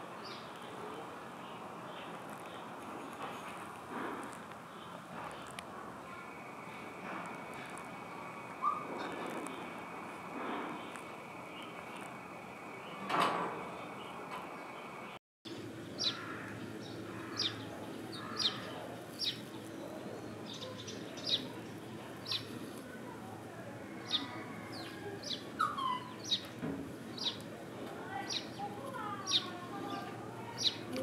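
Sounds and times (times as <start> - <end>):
steady background hum: 0.0 - 31.0
small bird chirping: 16.0 - 21.6, 22.2 - 22.6, 24.1 - 27.4, 28.2 - 31.0.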